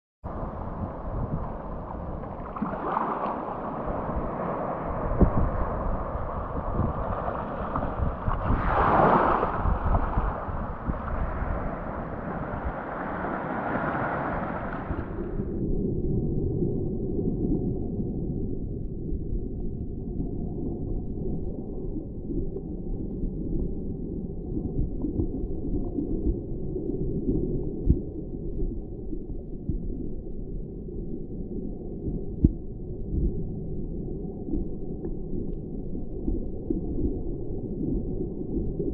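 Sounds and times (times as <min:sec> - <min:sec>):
wind rumble on microphone: 0:00.2 - 0:38.9
underwater sea water wash: 0:00.3 - 0:38.9
water lapping over rocks: 0:02.2 - 0:04.6, 0:06.6 - 0:11.0.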